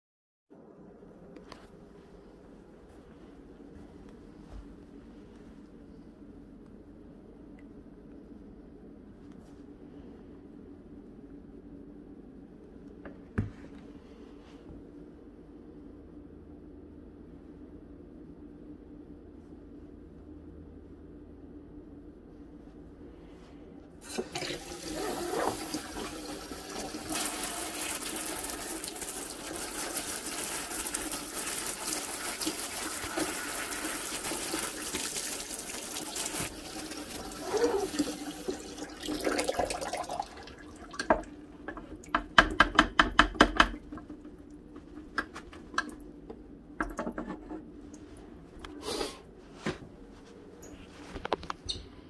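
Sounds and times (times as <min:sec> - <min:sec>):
faucet running water: 0:24.0 - 0:42.1.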